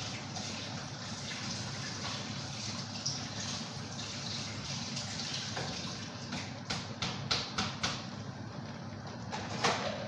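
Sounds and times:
soup boiling in a pot: 0:00.0 - 0:07.0.

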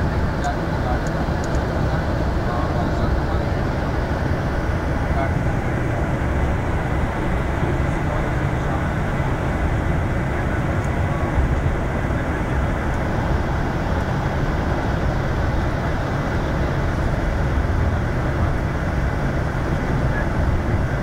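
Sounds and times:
bus engine and tyres rumbling: 0:00.0 - 0:21.0.

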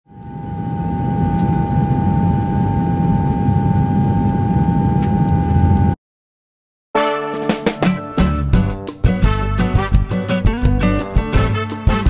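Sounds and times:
jet airliner engine hum: 0:00.1 - 0:06.0.

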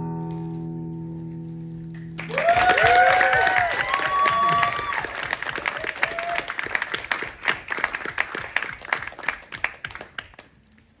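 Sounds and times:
audience applauding: 0:01.9 - 0:10.6.

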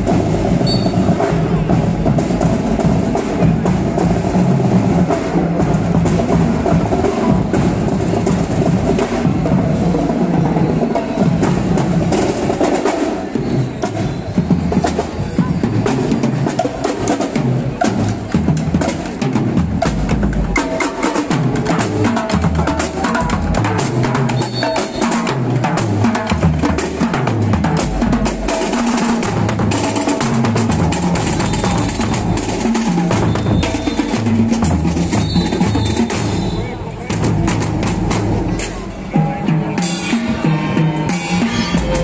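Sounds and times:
bass and snare drums beating: 0:00.0 - 0:42.0
brass and saxophones playing: 0:31.0 - 0:37.0.

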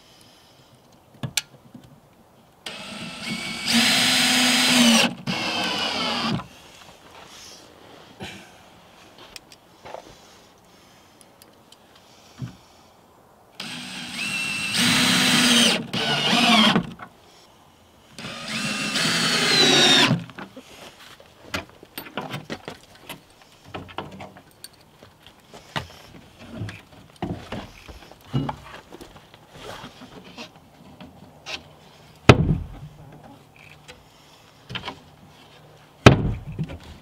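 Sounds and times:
cordless drill motor: 0:02.7 - 0:06.4, 0:13.6 - 0:16.9, 0:18.2 - 0:20.2.

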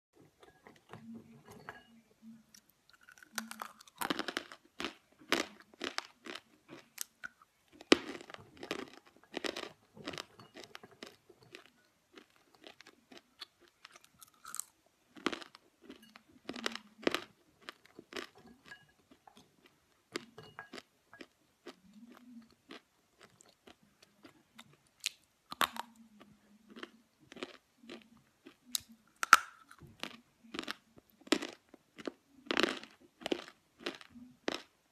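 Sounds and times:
crunchy chewing: 0:02.9 - 0:26.0, 0:26.7 - 0:34.8.

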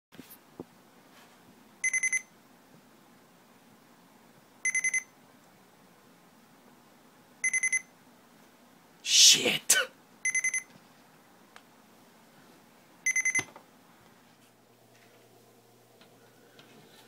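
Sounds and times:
alarm clock beeping: 0:01.8 - 0:02.3, 0:04.6 - 0:05.1, 0:07.4 - 0:07.9, 0:10.2 - 0:10.7, 0:13.1 - 0:13.5.

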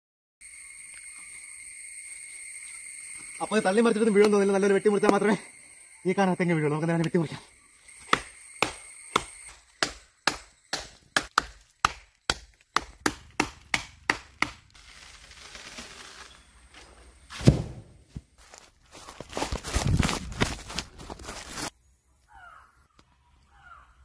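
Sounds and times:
machete chopping wood: 0:08.0 - 0:14.7, 0:17.3 - 0:18.0
tree falling thud: 0:17.3 - 0:18.2.

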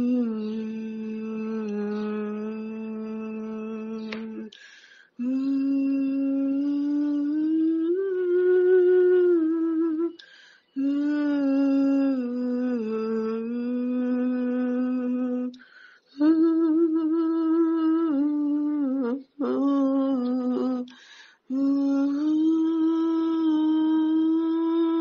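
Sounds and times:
woman humming: 0:00.0 - 0:04.6, 0:05.2 - 0:10.2, 0:10.8 - 0:15.6, 0:16.2 - 0:25.0.

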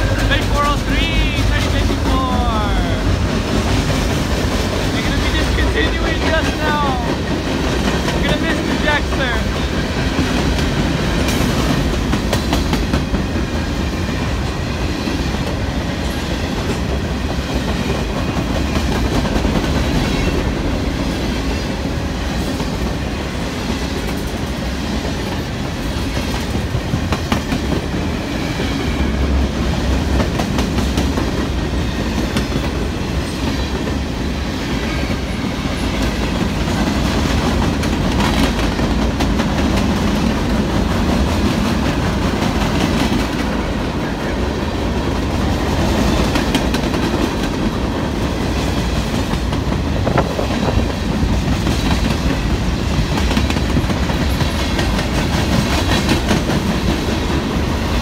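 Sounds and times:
steel wheels rumbling on rail: 0:00.0 - 0:58.0
wheels clacking over rail joints: 0:35.8 - 0:44.3.

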